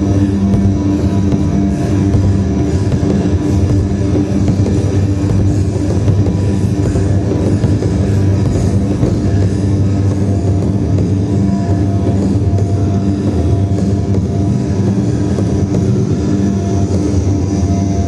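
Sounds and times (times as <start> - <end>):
heavy rock music: 0.0 - 18.0.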